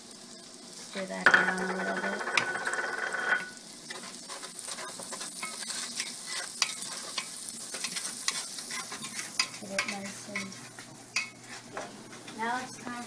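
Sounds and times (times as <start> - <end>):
onions sizzling in a pot: 0.0 - 13.0
wooden spoon scraping a pot: 1.8 - 11.7.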